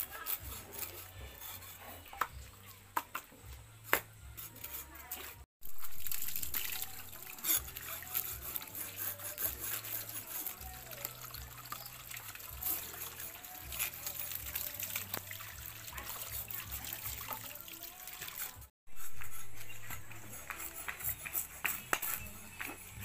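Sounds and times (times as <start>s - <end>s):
knife scraping cutting board: 0.0s - 2.4s, 7.4s - 11.1s, 18.9s - 23.0s
hose water splashing on concrete: 4.6s - 18.7s.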